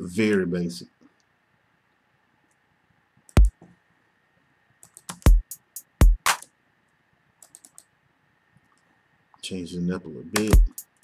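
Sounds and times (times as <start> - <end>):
closed hi-hat: 4.9 - 6.5, 10.3 - 11.0
deep kick drum: 6.0 - 6.2, 10.4 - 10.8
clap hits: 6.3 - 6.5.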